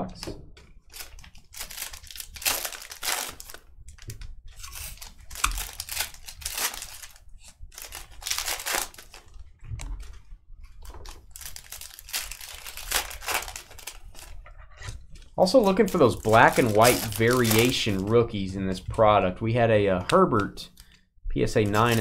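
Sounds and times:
foil wrappers tearing and crinkling: 0.9 - 9.4, 10.8 - 14.4, 15.4 - 18.1, 21.6 - 22.0.

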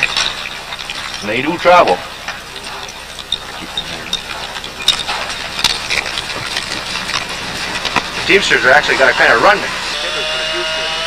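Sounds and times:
sharp cracks and knocks: 0.0 - 8.3
harness hardware clinking: 0.0 - 9.8
hooves crunching in snow: 0.0 - 11.0.

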